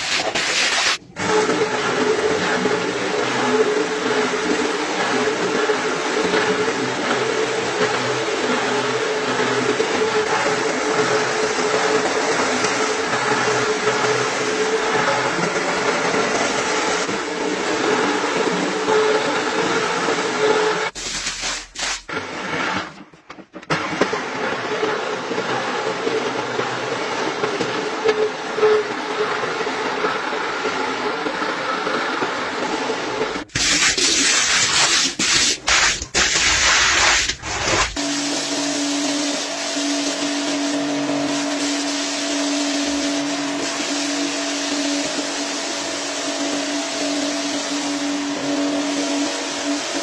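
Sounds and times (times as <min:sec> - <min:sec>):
brush swishing through foam: 0:00.0 - 0:01.0, 0:21.0 - 0:22.1, 0:33.6 - 0:38.4
floor scrubber motor hum: 0:00.0 - 0:50.0.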